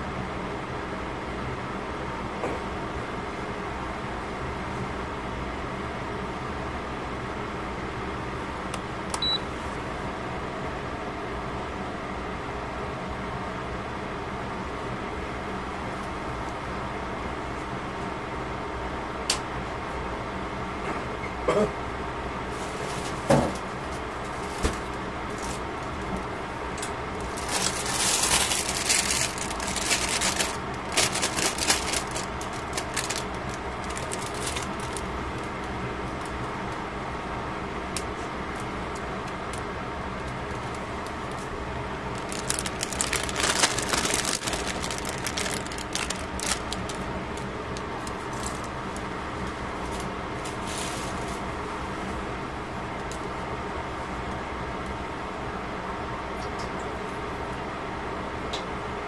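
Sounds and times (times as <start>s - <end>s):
steady hum: 23.8s - 59.0s.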